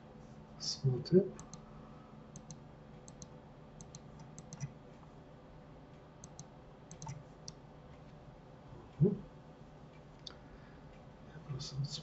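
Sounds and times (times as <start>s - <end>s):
mouse and keyboard clicking: 1.4s - 1.6s, 2.4s - 4.7s, 6.2s - 7.2s.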